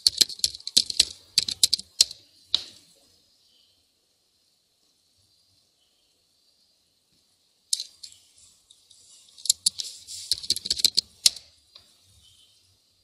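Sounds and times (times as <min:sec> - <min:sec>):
computer keyboard key clicks: 0:00.0 - 0:02.2, 0:09.5 - 0:11.4.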